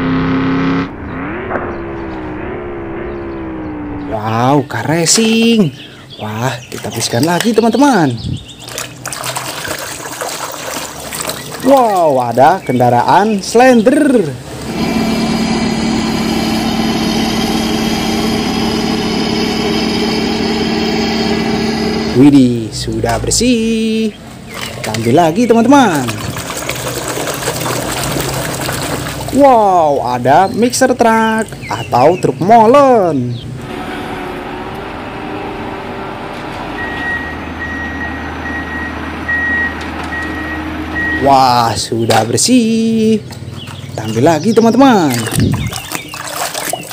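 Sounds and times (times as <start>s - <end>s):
diesel engine humming steadily: 13.0s - 30.8s, 31.4s - 42.1s
reversing alarm beeping: 14.7s - 22.3s, 36.7s - 41.4s.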